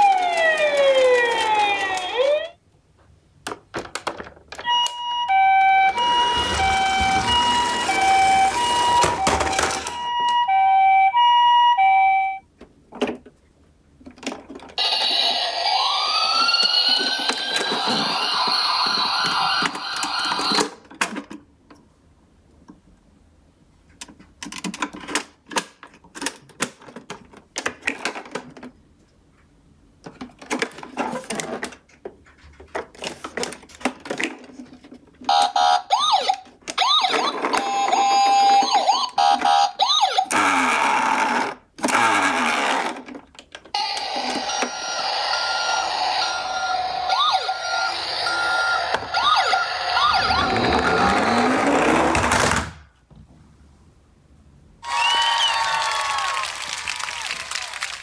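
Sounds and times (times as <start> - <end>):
toy electronic siren: 0.0 - 2.6, 4.6 - 12.4, 14.8 - 20.7, 35.3 - 41.4, 43.8 - 51.9
plastic toy parts clicking and rattling: 3.5 - 4.7, 24.0 - 28.8.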